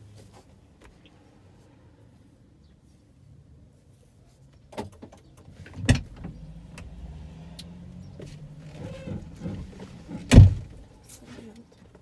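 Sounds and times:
car door click: 8.8s - 10.8s
car door thump: 8.8s - 10.8s.

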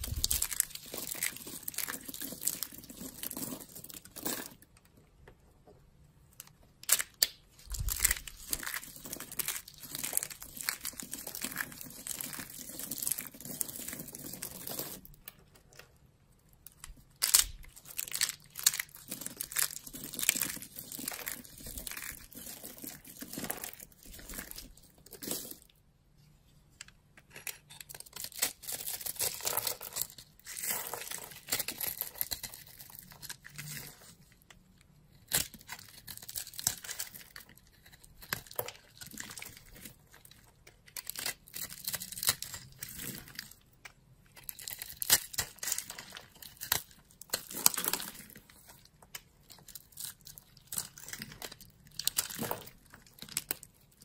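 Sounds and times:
dry soap crunching and crackling: 0.0s - 5.7s, 6.3s - 25.9s, 26.7s - 54.0s.

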